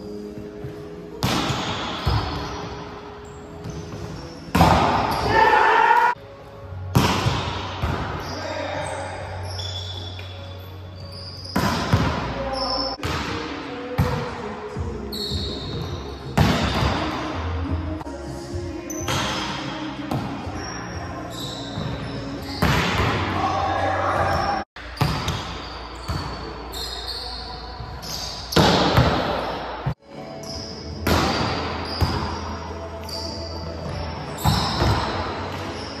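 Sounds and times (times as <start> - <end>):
sneakers squeaking on court: 0.0 - 5.6, 7.2 - 13.4, 14.0 - 17.4, 18.8 - 23.4, 24.1 - 36.0.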